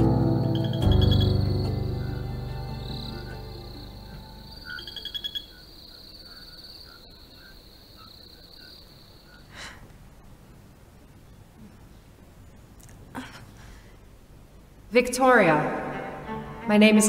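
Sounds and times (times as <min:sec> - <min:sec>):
crickets trilling: 0:00.2 - 0:09.6.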